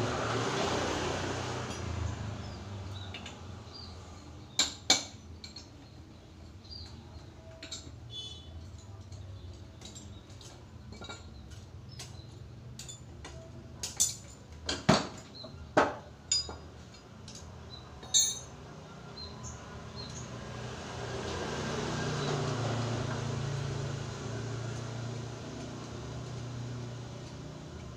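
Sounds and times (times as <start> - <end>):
metal hand tools clinking: 6.7 - 14.6, 16.3 - 18.6.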